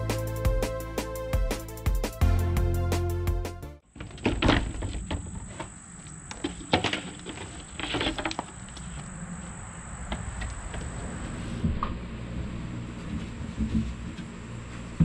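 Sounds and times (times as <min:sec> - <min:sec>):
wood knocks and scrapes: 0:04.0 - 0:05.7, 0:13.0 - 0:14.4.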